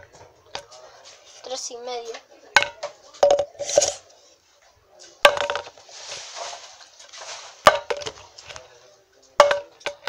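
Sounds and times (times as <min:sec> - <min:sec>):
rustle: 0:05.8 - 0:07.7.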